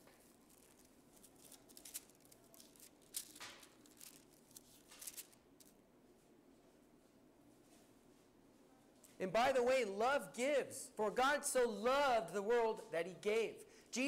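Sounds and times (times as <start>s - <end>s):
pages being turned: 0.0s - 5.8s.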